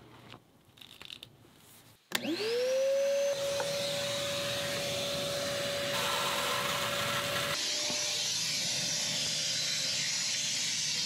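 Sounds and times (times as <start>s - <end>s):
wet vacuum sucking water: 3.6s - 7.6s.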